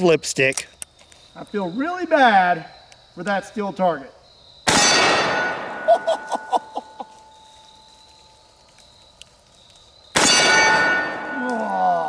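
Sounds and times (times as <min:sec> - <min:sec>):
revolver gunshots: 0:04.6 - 0:05.9, 0:10.2 - 0:11.4
steel target ringing: 0:04.7 - 0:07.4, 0:10.2 - 0:11.4.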